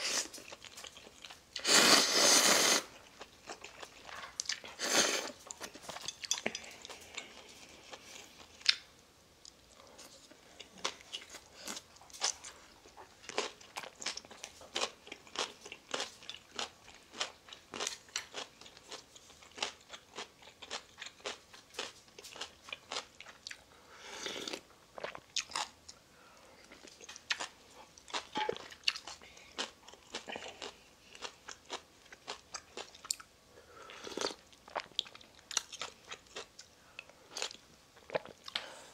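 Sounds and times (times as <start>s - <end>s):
slurping noodles: 1.6s - 3.0s.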